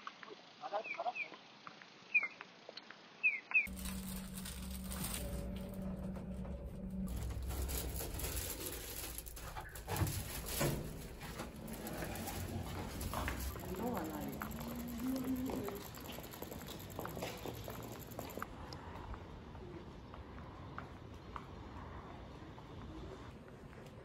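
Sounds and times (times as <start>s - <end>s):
high bird chirps: 3.2s - 3.7s
plastic bags rustling: 3.7s - 18.4s
lift humming and rumbling: 3.7s - 20.2s.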